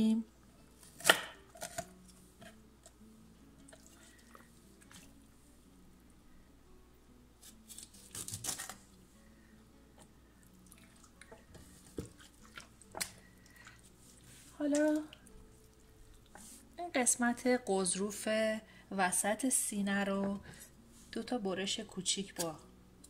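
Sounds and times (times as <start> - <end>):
bone crunching: 0.9 - 1.9, 7.7 - 8.8
knife cutting through chicken joint: 7.4 - 8.8.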